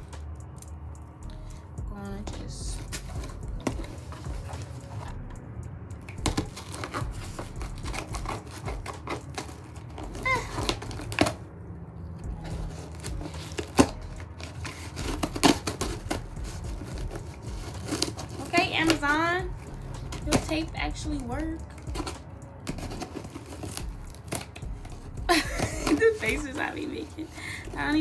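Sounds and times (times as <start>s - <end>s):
cardboard box crinkling and clicking: 6.1s - 11.4s, 12.4s - 28.0s.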